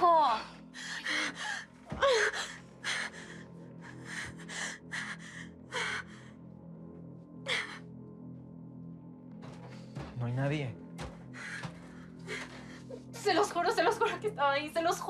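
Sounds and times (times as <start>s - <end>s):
faint low music drone: 0.0s - 15.0s
woman breathing rapidly: 0.5s - 6.5s, 11.0s - 13.2s.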